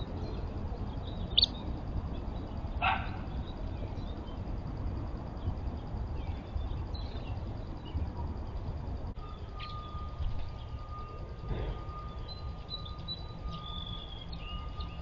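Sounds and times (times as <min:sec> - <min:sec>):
low steady rumble: 0:00.0 - 0:15.0
bird chirps and calls: 0:01.0 - 0:04.4.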